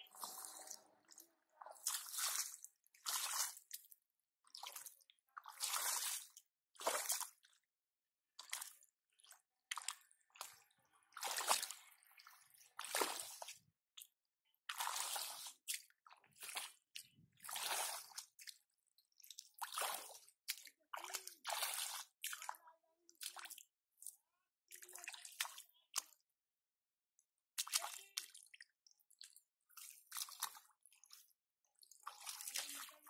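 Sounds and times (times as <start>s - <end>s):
hands squelching in mud: 0.1s - 0.8s, 1.7s - 7.3s.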